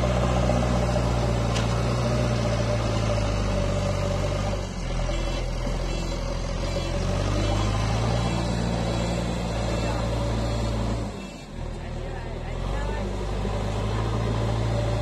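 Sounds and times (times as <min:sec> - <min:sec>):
diesel engine drone with whine: 0:00.0 - 0:15.0.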